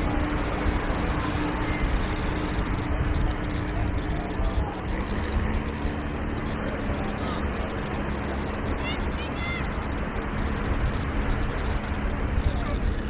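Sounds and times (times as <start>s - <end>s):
distant engine hum: 0.0s - 13.0s
surf rushing: 0.0s - 13.0s
wind: 0.0s - 13.0s.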